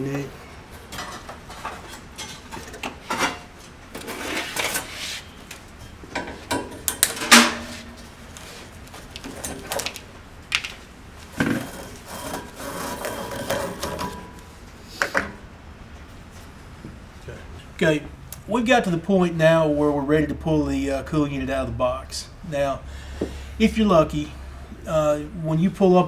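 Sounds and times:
scraping and rubbing on metal tubing: 0:04.0 - 0:05.3, 0:11.6 - 0:14.2.

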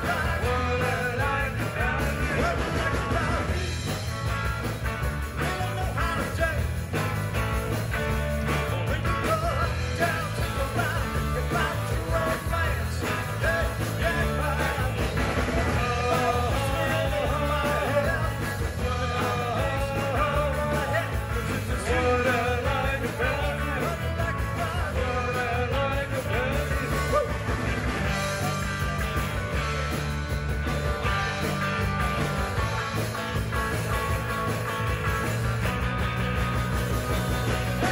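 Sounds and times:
man singing lead vocal: 0:00.0 - 0:04.0, 0:05.4 - 0:07.2, 0:08.3 - 0:29.3, 0:30.9 - 0:31.9
rock band playing: 0:00.0 - 0:37.9.

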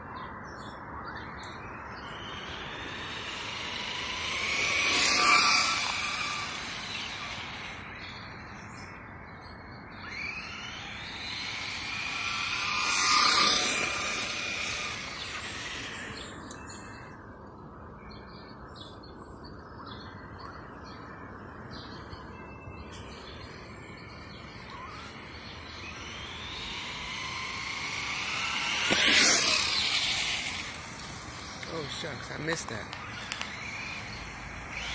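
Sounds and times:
toy truck motor whining past: 0:01.6 - 0:08.6, 0:10.0 - 0:17.1, 0:22.9 - 0:34.9.

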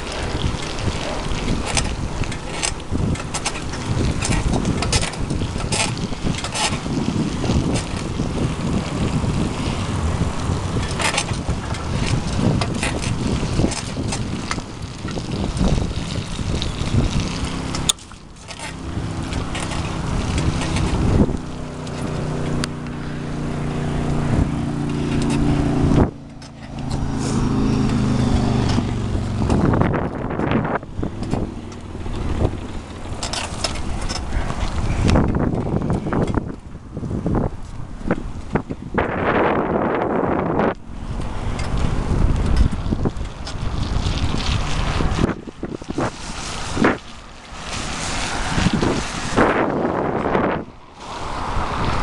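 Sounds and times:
bicycle parts squeaking and rattling: 0:00.0 - 0:52.0
wind buffeting microphone: 0:00.0 - 0:52.0.

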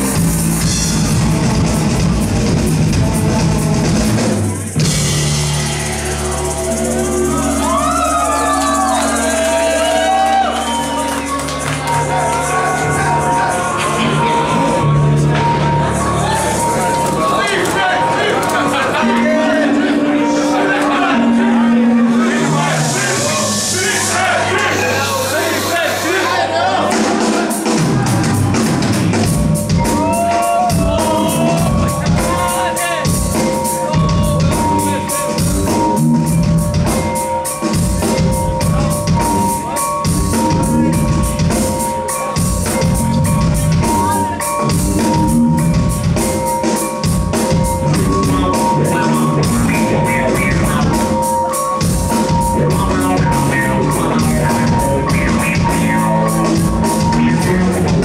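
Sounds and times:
fast drum beat: 0:00.0 - 0:11.0, 0:22.9 - 0:58.0
rock band playing: 0:00.0 - 0:58.0.

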